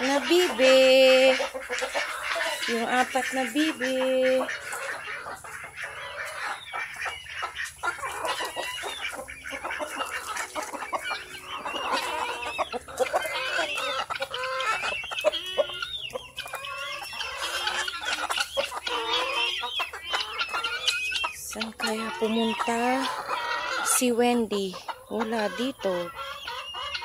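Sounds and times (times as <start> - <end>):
chickens clucking: 0.0 - 27.0.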